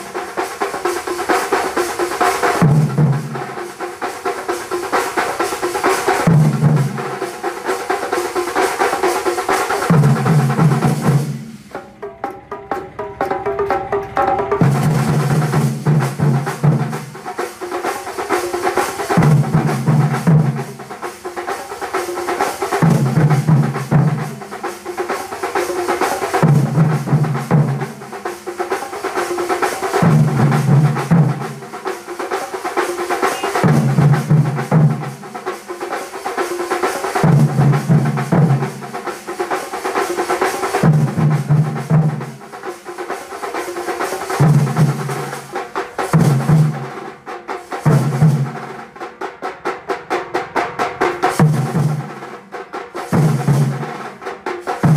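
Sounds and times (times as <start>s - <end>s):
drum band playing fast rhythm: 0.0s - 54.9s
deep booming drum phrase: 9.8s - 17.2s.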